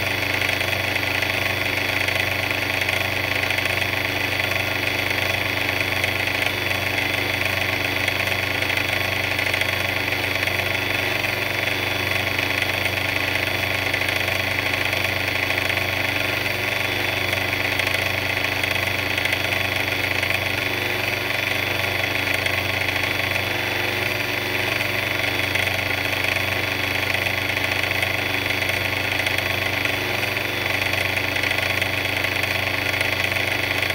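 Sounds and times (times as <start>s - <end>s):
mixer machine hum: 0.0s - 33.9s.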